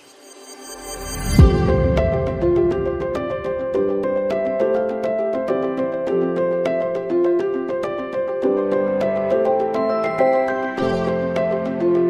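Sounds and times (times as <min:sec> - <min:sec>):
background music with light beat: 0:01.2 - 0:12.0
deep falling boom: 0:01.4 - 0:04.1.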